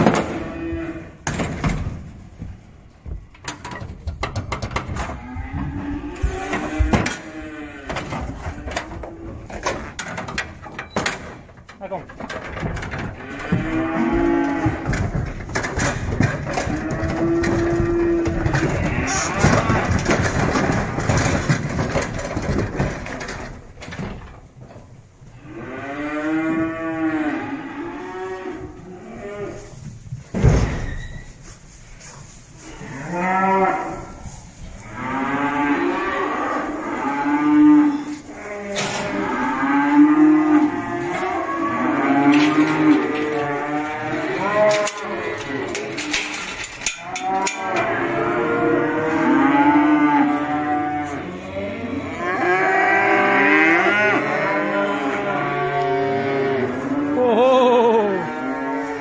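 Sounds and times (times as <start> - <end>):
cattle mooing and bellowing: 0.0 - 1.8, 4.5 - 10.8, 12.6 - 23.5, 25.3 - 29.8, 32.6 - 59.0
thump: 30.2 - 31.0.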